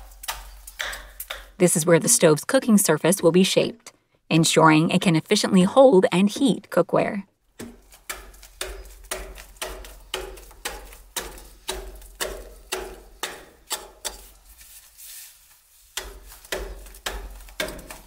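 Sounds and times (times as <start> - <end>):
hand tool chopping stone: 0.0 - 1.6, 7.6 - 14.4, 15.9 - 18.0.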